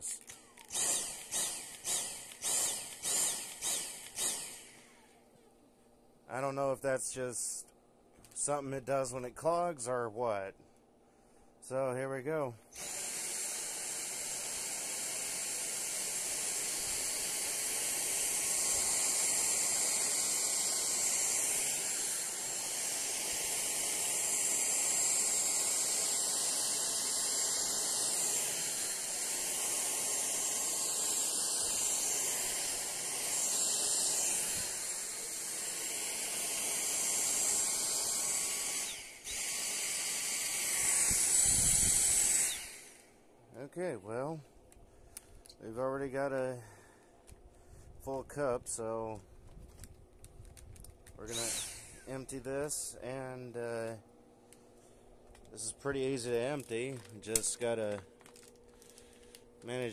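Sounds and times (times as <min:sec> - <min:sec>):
vacuum cleaner motor whine: 0:12.8 - 0:43.1, 0:51.3 - 0:52.3.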